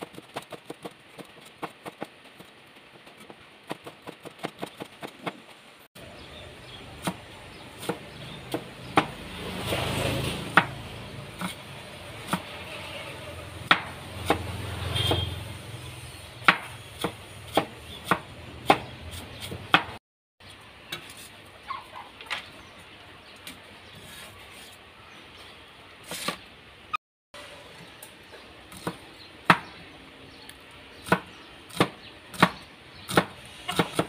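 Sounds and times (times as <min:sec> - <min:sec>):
cleaver chopping on wooden board: 0:13.6 - 0:15.3, 0:16.4 - 0:20.0, 0:28.7 - 0:29.7, 0:31.0 - 0:34.0.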